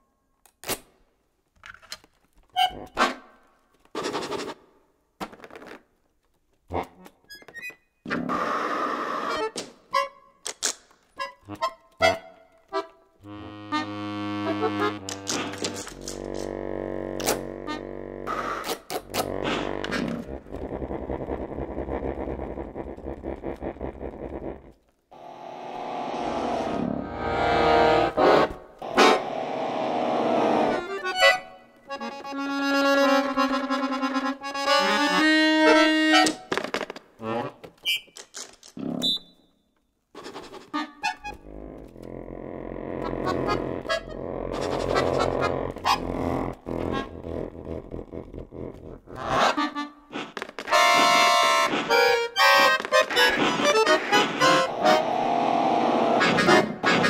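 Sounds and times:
accordion playing dissonant chords: 11.2s - 20.0s, 25.2s - 36.4s, 49.2s - 57.0s.

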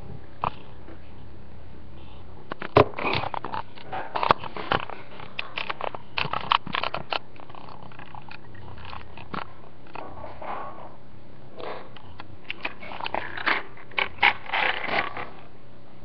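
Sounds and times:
plastic toy clicks and rustles: 2.5s - 10.0s, 12.1s - 15.4s.

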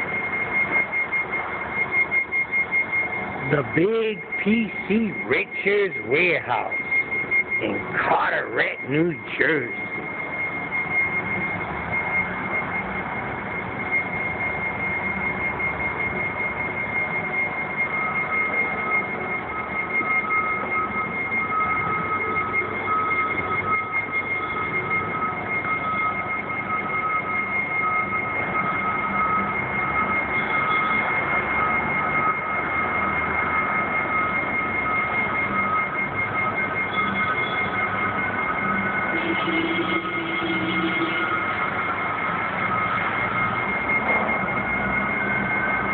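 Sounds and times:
low steady tone: 0.0s - 45.9s
thin high whine: 2.9s - 25.1s.

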